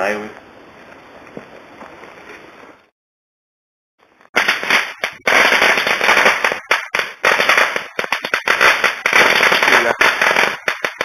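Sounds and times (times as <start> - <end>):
loud dense crackling: 4.2 - 11.0.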